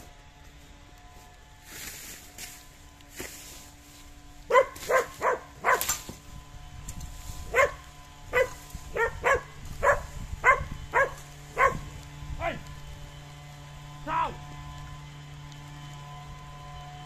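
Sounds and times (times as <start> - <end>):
dog barking: 4.5 - 6.0, 7.5 - 11.9.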